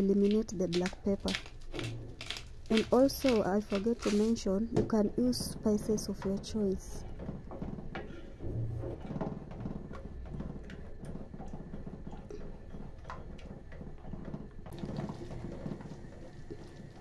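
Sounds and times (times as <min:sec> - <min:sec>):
wooden spoon stirring soup: 0:00.0 - 0:17.0
thick soup bubbling in a pot: 0:06.6 - 0:17.0.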